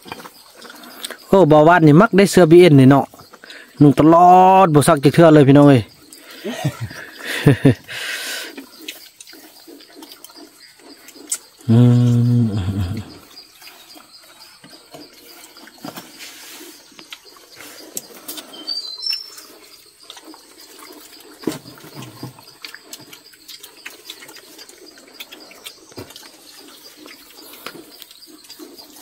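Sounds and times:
bird chirping: 0.0 - 29.0
man's voice: 11.7 - 13.1.

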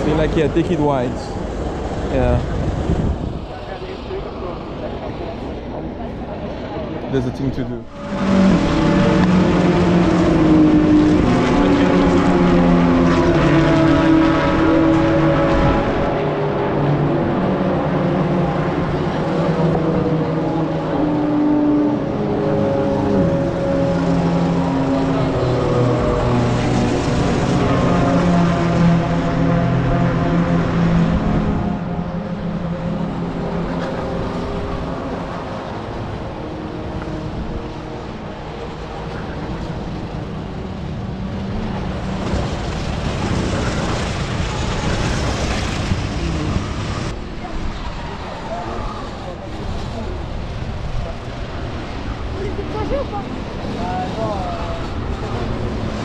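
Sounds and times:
wind buffeting microphone: 0.0 - 7.1
go-kart engines droning: 0.0 - 56.0.

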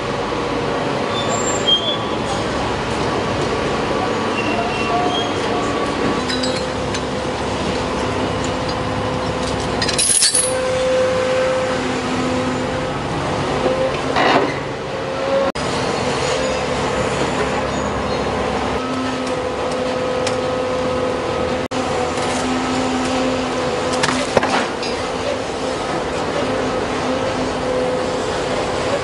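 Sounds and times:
excavator engine and hydraulics hum: 0.0 - 29.0
sharp metallic clinks: 9.8 - 10.6.

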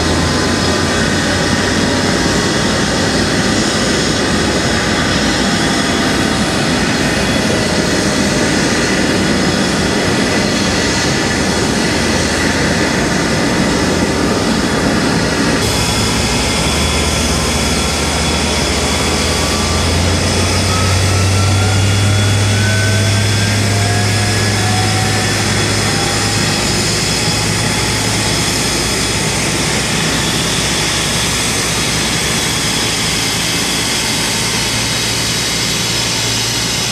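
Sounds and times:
jet engine roar: 0.0 - 36.9
faint rising whine: 15.6 - 31.0.

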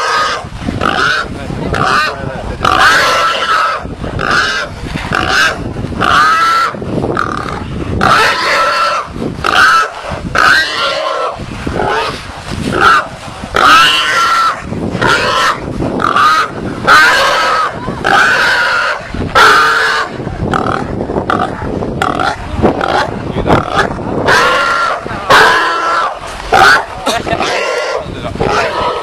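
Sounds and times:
wild boar squealing: 0.0 - 20.1.

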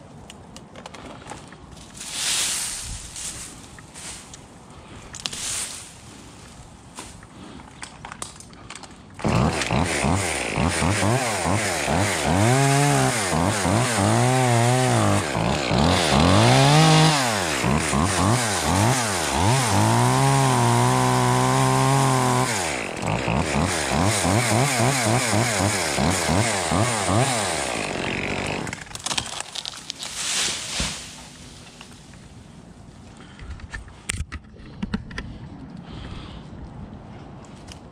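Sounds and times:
chainsaw revving: 9.2 - 28.9.

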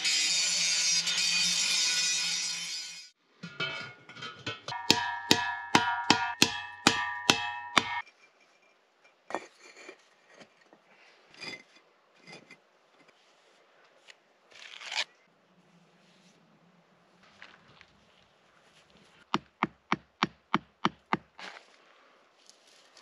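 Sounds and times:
hammer striking metal cylinder: 3.5 - 8.0
bricks and trowel scraping: 9.3 - 13.2.

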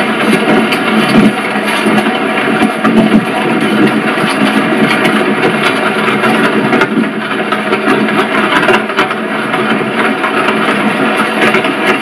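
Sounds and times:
horse-drawn carriage rattling: 0.0 - 12.0.

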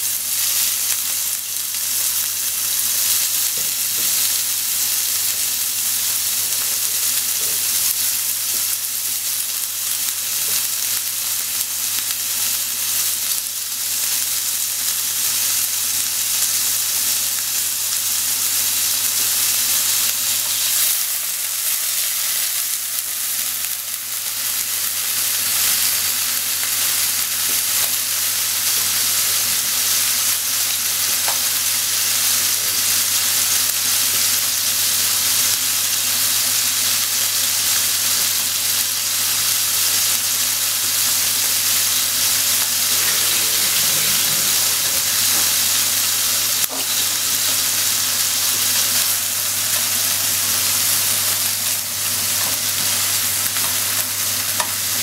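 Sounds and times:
food sizzling in frying pan: 0.0 - 55.0
chopsticks scraping pan: 42.6 - 45.7.

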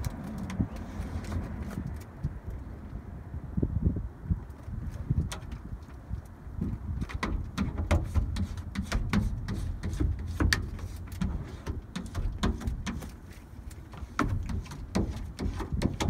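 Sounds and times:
squeegee scraping on window: 7.2 - 16.0.

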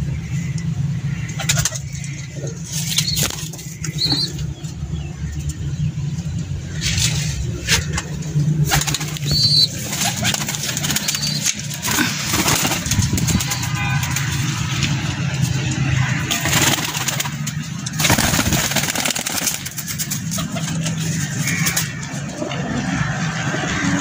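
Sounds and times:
pigeons cooing: 0.9 - 4.6, 8.6 - 14.3
pigeons flapping wings: 8.6 - 14.9, 16.2 - 21.9.

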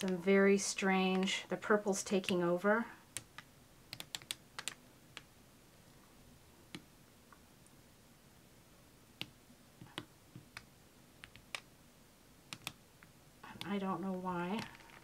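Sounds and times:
faint clicks and ticks: 0.0 - 0.2, 3.1 - 5.3, 12.5 - 13.8.

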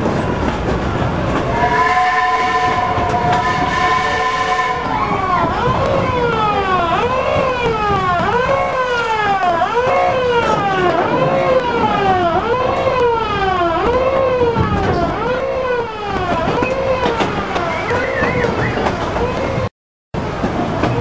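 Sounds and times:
train rumble: 0.0 - 21.0
wailing siren-like tone: 1.6 - 19.7.

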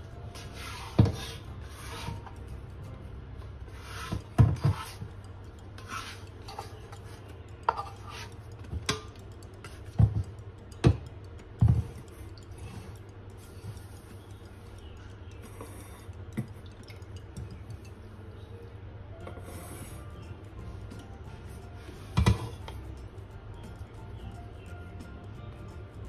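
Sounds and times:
dough scraped in metal bowl: 0.4 - 2.3, 3.7 - 5.0, 5.8 - 6.9.

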